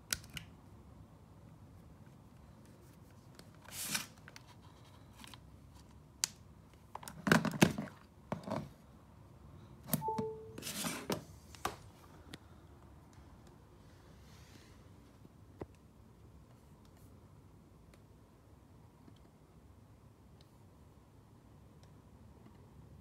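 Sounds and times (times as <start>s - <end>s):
falling two-note chime: 10.0s - 10.6s.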